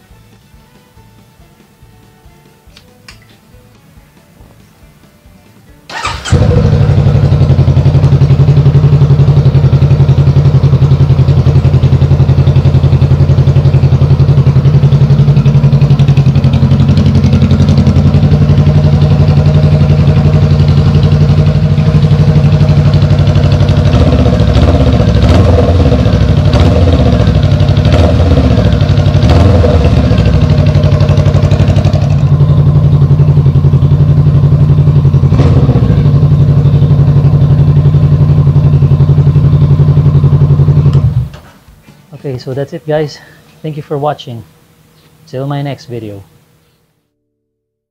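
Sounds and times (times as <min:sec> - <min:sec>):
motorcycle engine idling loud: 0:05.9 - 0:41.4
motorcycle engine starting: 0:05.9 - 0:41.5.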